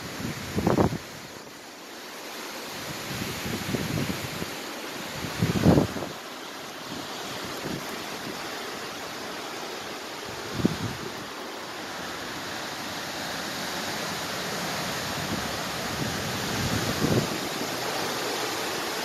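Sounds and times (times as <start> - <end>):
wind gusts buffeting microphone: 0.0 - 1.3, 2.8 - 4.5, 5.1 - 9.2, 10.2 - 11.4, 14.9 - 19.0
heavy rain: 0.0 - 19.0
wind: 0.0 - 19.0.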